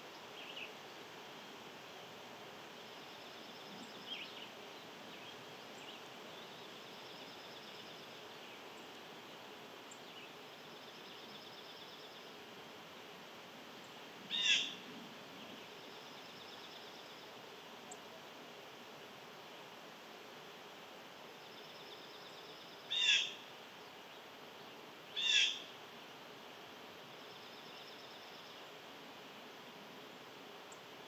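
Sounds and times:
background hiss: 0.0s - 31.0s
bird trills: 22.9s - 23.4s, 25.2s - 25.6s.

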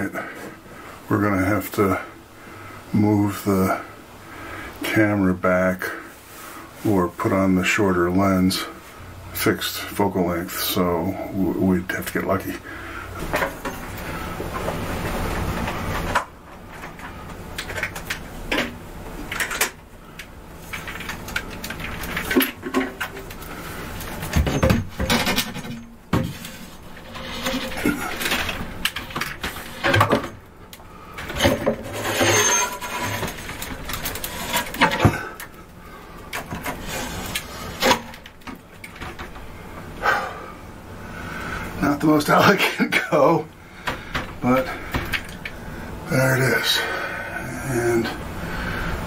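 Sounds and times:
tiles clinking and rattling: 24.2s - 30.4s, 31.2s - 35.2s.

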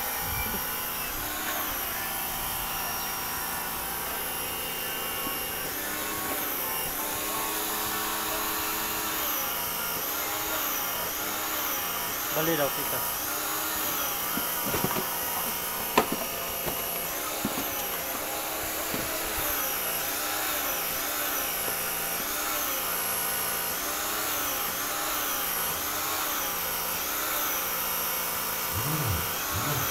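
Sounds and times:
machine whirring with wobble: 28.6s - 29.9s.

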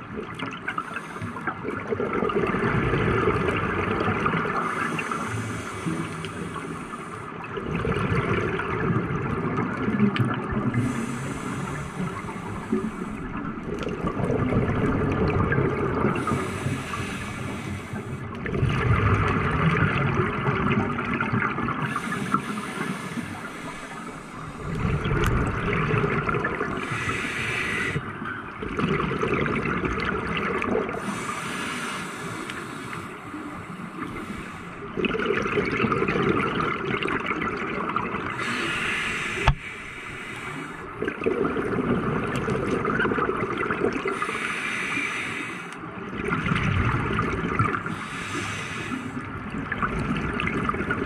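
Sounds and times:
gurgling bubbles: 0.0s - 32.3s, 33.9s - 40.0s, 40.6s - 44.7s, 45.9s - 51.0s
regulator inhale hiss: 0.8s - 1.5s, 4.6s - 7.4s, 10.7s - 13.4s, 16.2s - 18.3s, 21.9s - 24.8s, 26.8s - 28.1s, 31.0s - 34.9s, 38.3s - 41.0s, 44.1s - 45.9s, 47.9s - 49.3s.

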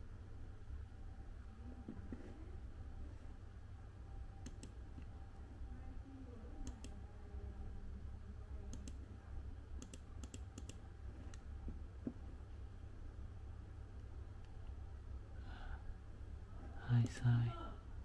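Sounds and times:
low steady hum: 0.0s - 18.0s
computer mouse button clicking: 4.4s - 4.8s, 6.6s - 7.0s, 8.7s - 9.0s, 9.8s - 10.8s.

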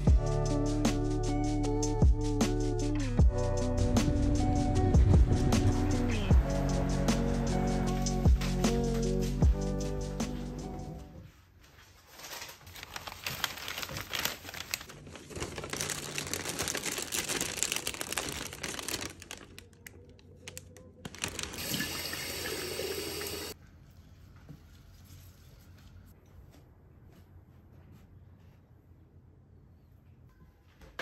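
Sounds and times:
plastic and paper wrapping crinkling: 11.3s - 22.2s.

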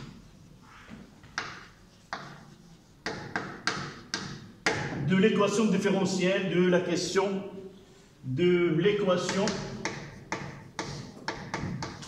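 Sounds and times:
chalk tapping and scratching on blackboard: 0.0s - 5.0s, 9.2s - 12.0s.

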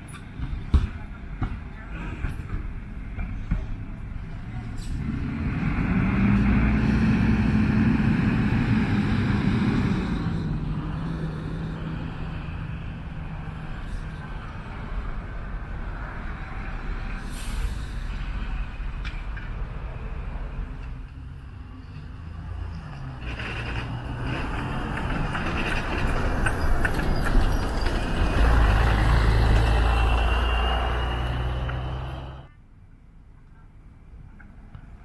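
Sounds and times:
traffic noise: 0.0s - 35.0s
bus engine rumble driving past: 1.8s - 32.5s
brief air hiss: 17.2s - 18.0s
rising engine whine: 26.1s - 32.5s.

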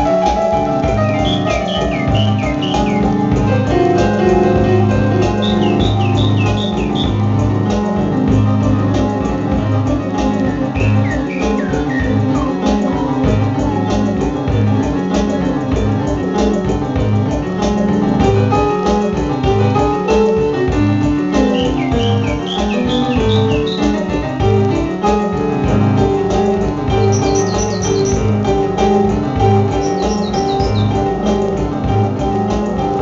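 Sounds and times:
live instrumental band: 0.0s - 33.0s
high falling chirp-like glides: 1.0s - 3.4s, 5.3s - 7.2s, 10.8s - 12.6s, 21.4s - 24.1s, 27.0s - 28.2s, 29.8s - 31.0s.

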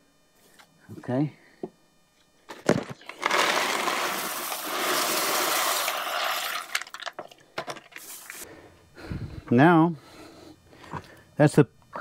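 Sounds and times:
gravel pouring: 3.2s - 7.2s.

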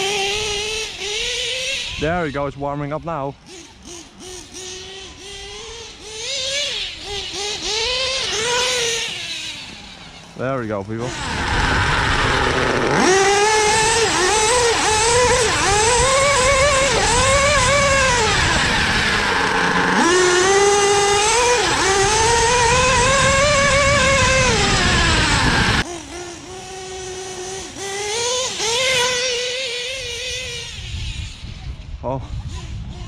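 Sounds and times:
nitro engine revving: 0.0s - 33.0s
wind noise: 11.1s - 25.8s, 30.0s - 33.0s.

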